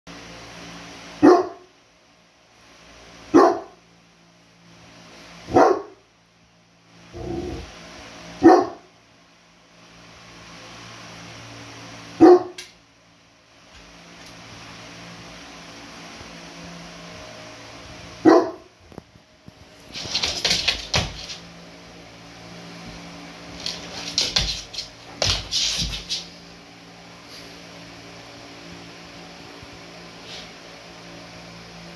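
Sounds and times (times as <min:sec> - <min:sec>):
dog barking deeply: 0:01.2 - 0:01.7, 0:03.3 - 0:03.8, 0:05.5 - 0:06.0, 0:08.4 - 0:08.8, 0:12.2 - 0:12.6, 0:18.2 - 0:18.7
dogs scuffling and rustling: 0:18.8 - 0:21.6, 0:22.7 - 0:26.6.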